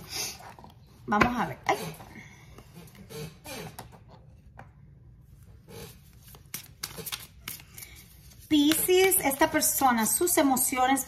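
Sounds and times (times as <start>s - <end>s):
cards being shuffled: 6.0s - 9.6s.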